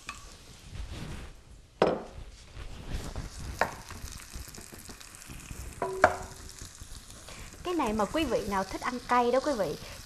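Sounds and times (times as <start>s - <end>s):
wooden spatula stirring onion: 2.4s - 10.0s
spatula knocking against pan: 5.8s - 6.3s.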